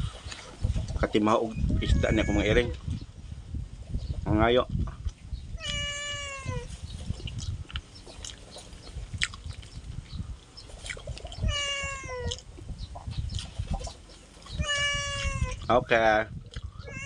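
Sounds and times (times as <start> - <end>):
cat meowing: 1.7 - 2.8, 5.6 - 6.7, 11.4 - 12.4, 14.6 - 15.7
chewing: 7.2 - 11.4, 12.3 - 12.6, 13.3 - 14.6, 16.4 - 16.8.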